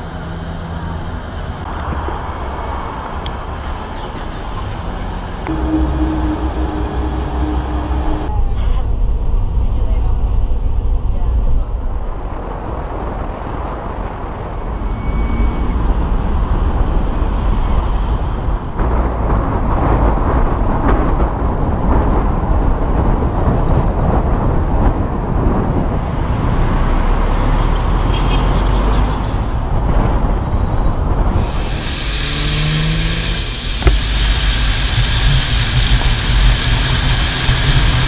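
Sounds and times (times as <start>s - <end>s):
van tyres and engine rumble: 0.0s - 38.0s
wind buffeting microphone: 5.3s - 28.0s
bright hiss: 31.4s - 38.0s.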